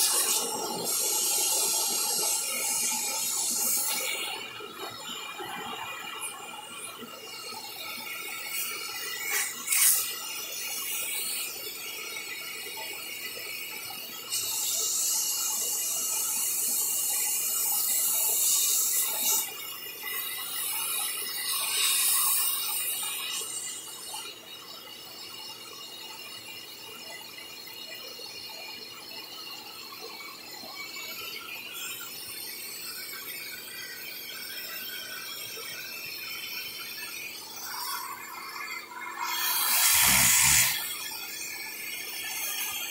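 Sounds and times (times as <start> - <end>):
suction hissing and squealing: 0.0 - 25.6, 30.4 - 42.9
vacuum cleaner motor whine: 37.5 - 42.9.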